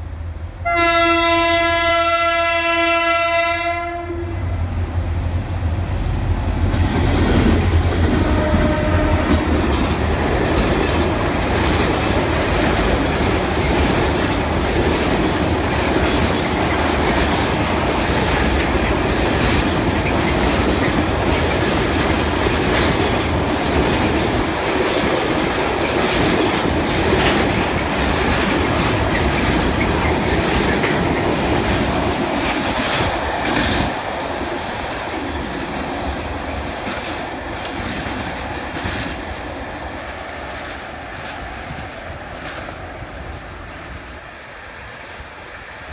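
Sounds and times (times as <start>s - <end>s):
diesel locomotive engine rumble: 0.0s - 45.9s
train wheels clattering over rail joints: 6.7s - 39.2s.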